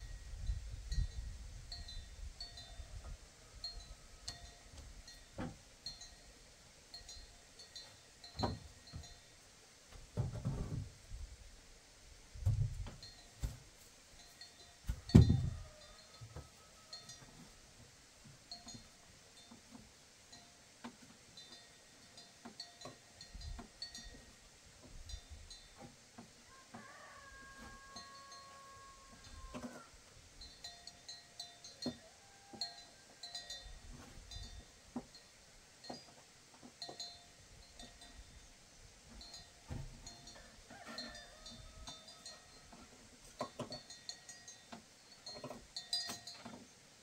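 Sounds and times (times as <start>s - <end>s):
dull knocks and thuds: 10.1s - 11.0s, 14.9s - 15.6s, 39.6s - 40.1s.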